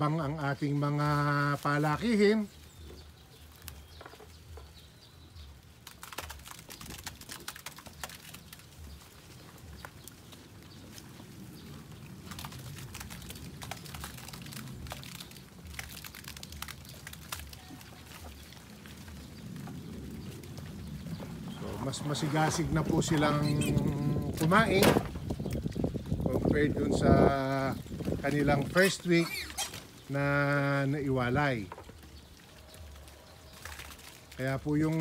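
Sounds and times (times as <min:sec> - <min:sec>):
footsteps on gravel: 0:00.6 - 0:26.5.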